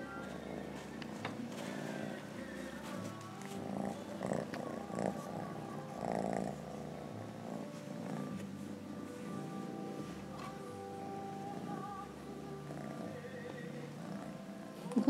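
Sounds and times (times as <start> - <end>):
kitten purring: 0.0 - 15.0.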